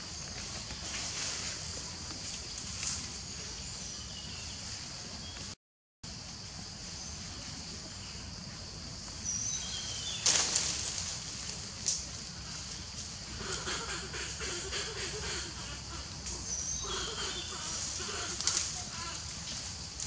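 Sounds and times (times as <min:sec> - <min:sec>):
high forest hiss: 0:00.0 - 0:20.0
monkeys scuffling: 0:17.5 - 0:20.0.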